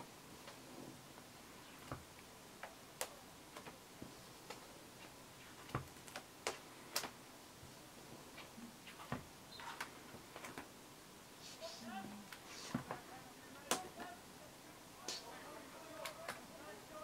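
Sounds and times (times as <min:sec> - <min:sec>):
plastic binder pages turning: 0:03.5 - 0:03.8, 0:08.9 - 0:10.7.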